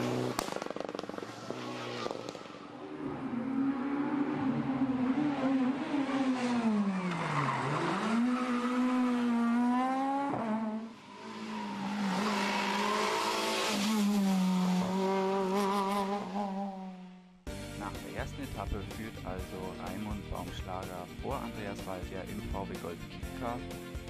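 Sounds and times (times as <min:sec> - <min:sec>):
rally car engine: 0:00.0 - 0:18.7.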